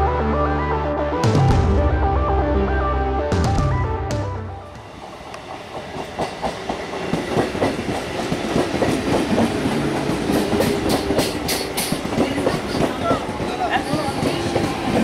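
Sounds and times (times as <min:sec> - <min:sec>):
train rumble: 0:04.5 - 0:15.0
train wheels clickety-clack: 0:04.8 - 0:15.0.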